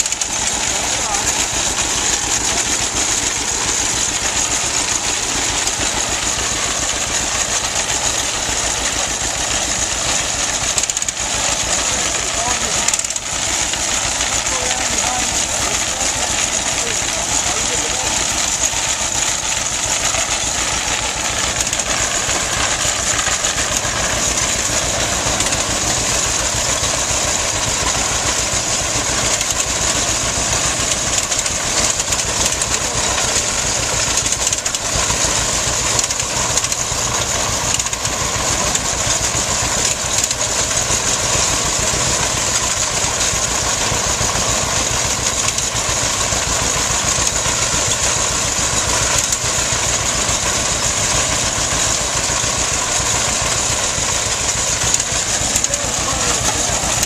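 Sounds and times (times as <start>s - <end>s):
tractor engine running under load: 0.0s - 57.0s.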